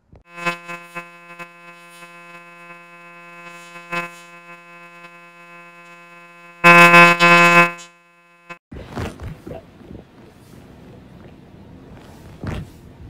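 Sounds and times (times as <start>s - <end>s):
buzzy electronic tone: 0.3s - 8.6s.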